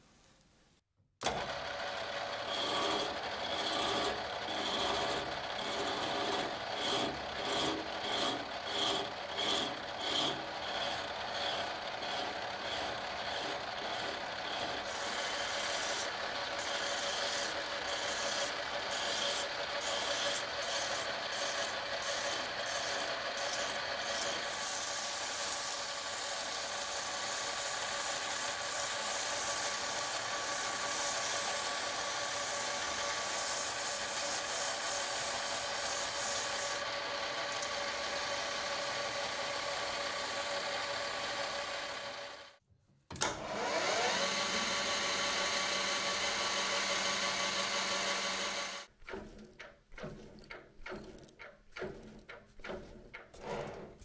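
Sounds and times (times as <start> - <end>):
metal lathe running: 1.2 - 42.5, 43.4 - 48.9
hand file strokes: 2.5 - 37.7, 48.8 - 54.0.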